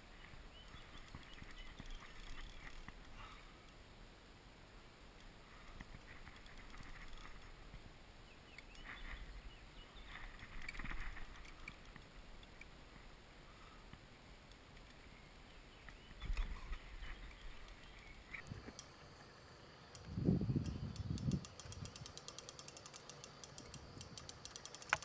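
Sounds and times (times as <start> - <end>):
fishing rod and reel handling: 5.6 - 7.6, 20.0 - 25.0
low wind rumble: 20.0 - 22.1.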